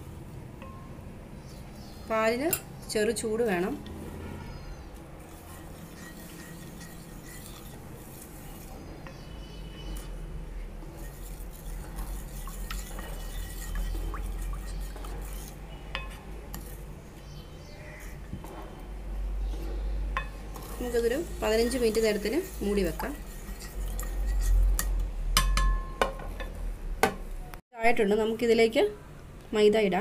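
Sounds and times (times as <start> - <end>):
spoon scraping ceramic bowl: 4.2 - 10.2, 10.8 - 16.8, 20.2 - 25.0.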